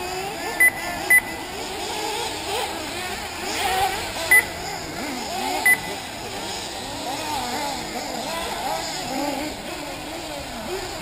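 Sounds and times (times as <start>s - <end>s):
model car engines whining and revving: 0.0s - 11.0s
short high electronic beep: 4.3s - 4.5s.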